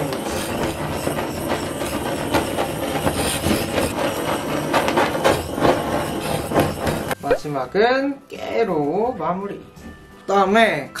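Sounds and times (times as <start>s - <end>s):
blowtorch flame hissing: 0.0s - 7.2s.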